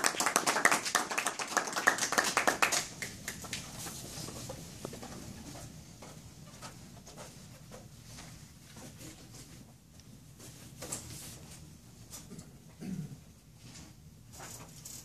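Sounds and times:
small audience applauding: 0.0 - 3.8
faint clicks and shuffles: 3.0 - 12.8.

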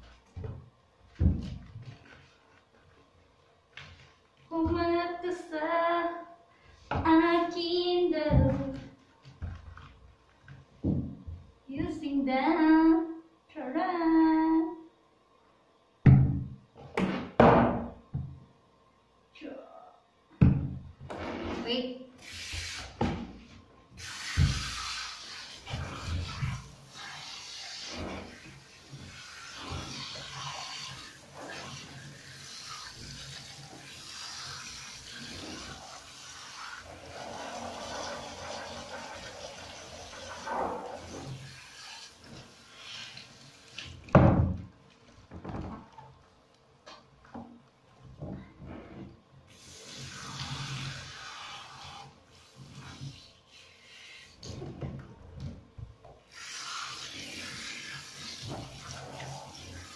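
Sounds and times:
shower head spraying water: 24.0 - 43.9, 56.3 - 59.9.

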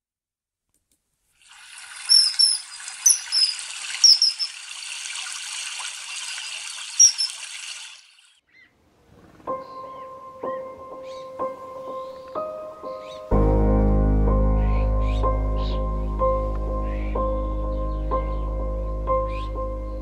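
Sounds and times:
running water: 1.3 - 8.4
short high bird calls: 2.0 - 4.6, 6.4 - 7.4.

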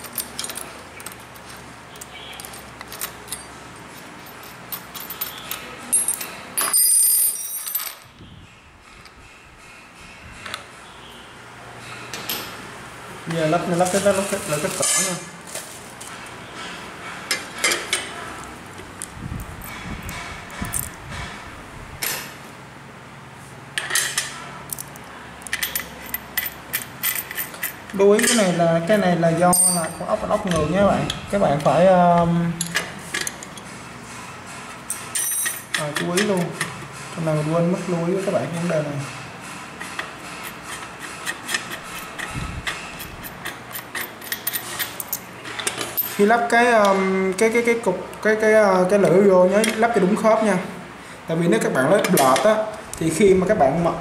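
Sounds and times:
small metal parts clinking: 0.0 - 8.1, 19.4 - 21.0, 23.8 - 28.6, 29.5 - 30.6, 34.9 - 36.3, 40.4 - 46.3
high metallic ring: 5.0 - 8.0, 29.5 - 30.1.

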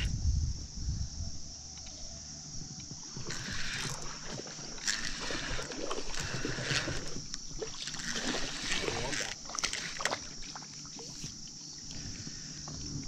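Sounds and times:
water sloshing and splashing: 3.1 - 13.0.

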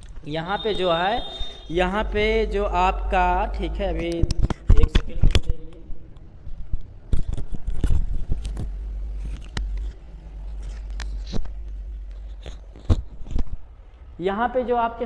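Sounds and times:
low rumble: 1.4 - 4.7, 5.5 - 14.8
cloth rubbing on microphone: 6.4 - 13.8.

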